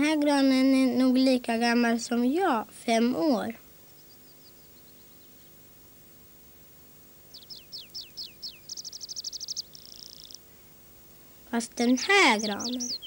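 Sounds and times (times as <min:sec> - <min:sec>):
bird singing with trills: 0:03.8 - 0:05.6, 0:07.3 - 0:10.6, 0:11.7 - 0:13.0.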